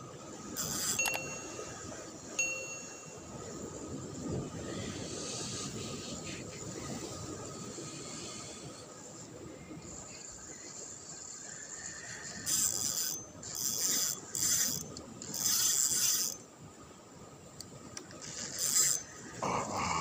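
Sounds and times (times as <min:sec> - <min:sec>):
fishing reel gears whirring: 0:00.4 - 0:03.4, 0:09.8 - 0:16.5, 0:18.2 - 0:19.4.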